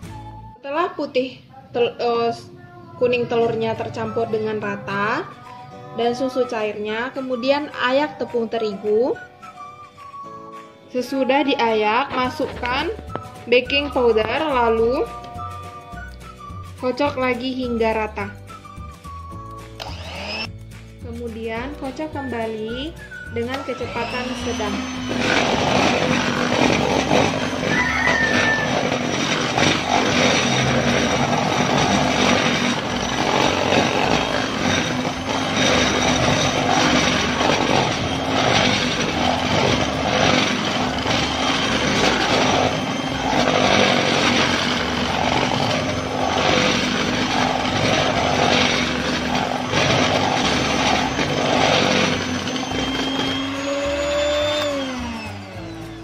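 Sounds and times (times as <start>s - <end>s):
electric hand mixer whisking: 18.4s - 20.5s, 22.5s - 56.0s.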